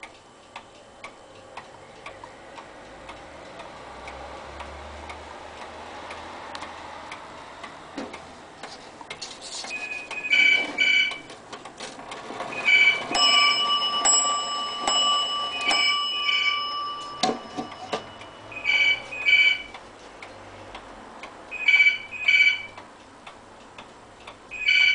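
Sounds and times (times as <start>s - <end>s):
pendulum wall clock ticking: 0.0s - 9.2s, 10.0s - 24.9s
struck bell-like ring: 13.1s - 19.0s
repeating double tone: 16.3s - 19.7s.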